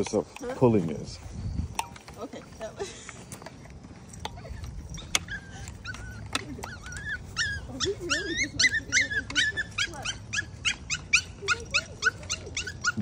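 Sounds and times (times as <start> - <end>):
puppy yelping: 4.5 - 13.0.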